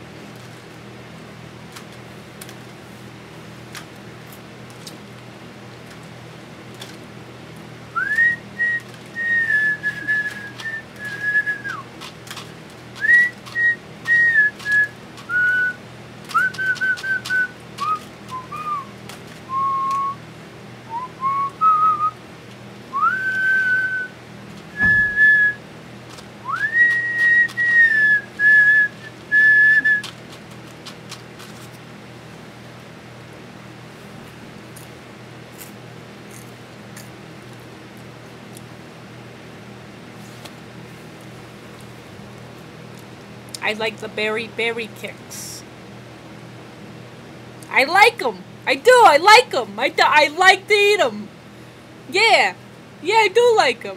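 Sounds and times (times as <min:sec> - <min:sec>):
person whistling a tune: 0:08.0 - 0:11.8, 0:13.0 - 0:18.9, 0:23.0 - 0:24.1, 0:24.8 - 0:25.6, 0:26.5 - 0:30.0
soft thud: 0:24.8 - 0:25.2.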